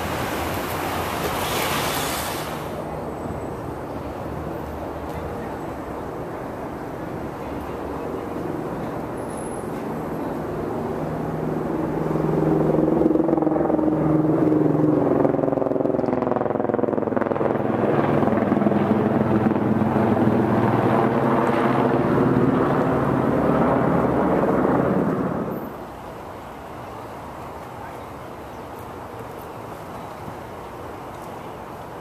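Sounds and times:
engine passing by: 11.0s - 25.8s.

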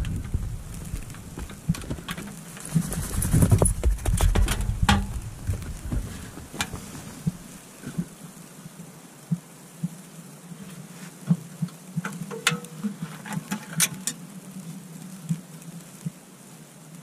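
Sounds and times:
dull thumps: 0.0s - 8.1s
rustling: 0.0s - 16.9s.

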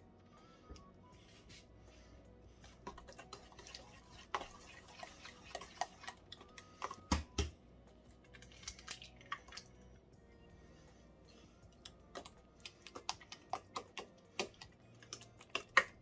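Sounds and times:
fork scraping metal bowl: 2.8s - 6.2s.

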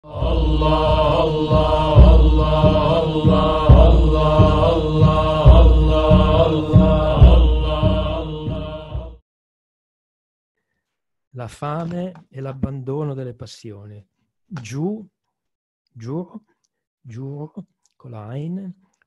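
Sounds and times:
devotional chanting: 0.0s - 9.2s
heavy drum beat: 0.1s - 9.1s.

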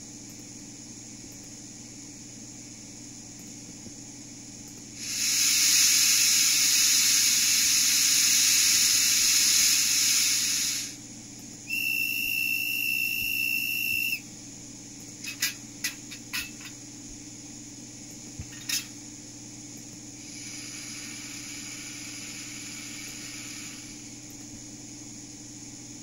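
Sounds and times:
loud steam hiss: 5.0s - 11.0s, 11.7s - 14.2s, 20.2s - 24.1s
steam whistle: 11.7s - 14.2s.

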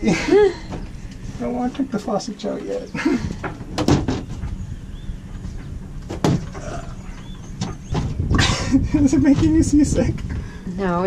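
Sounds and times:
steady low rumble: 0.0s - 11.0s
wooden cabinet knocks: 3.5s - 4.4s, 6.1s - 6.5s.

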